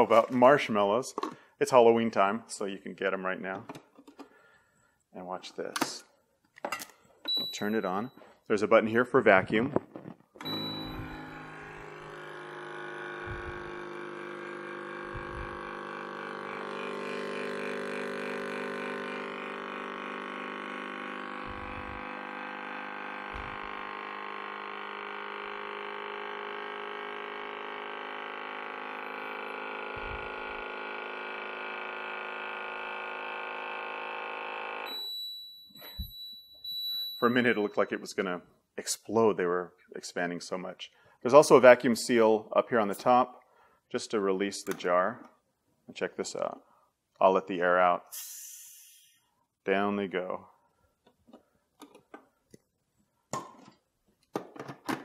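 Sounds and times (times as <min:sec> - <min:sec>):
beep: 0:07.2 - 0:08.3, 0:10.4 - 0:11.9, 0:34.9 - 0:38.1
high beep: 0:07.2 - 0:08.3, 0:10.4 - 0:11.9, 0:34.9 - 0:38.2
vacuum pump humming: 0:10.4 - 0:35.1.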